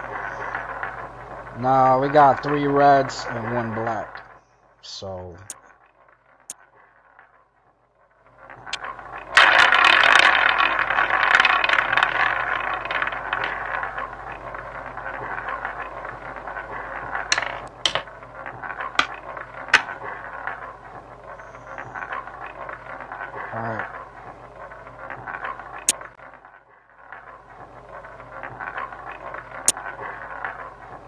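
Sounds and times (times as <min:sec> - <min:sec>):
roulette ball rolling: 0:00.0 - 0:04.4, 0:05.4 - 0:31.0.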